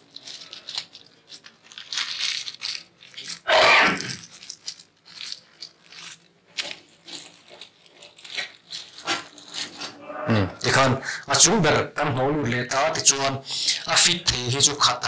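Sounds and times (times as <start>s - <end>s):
plastic wrappers rustling: 0.0s - 10.0s.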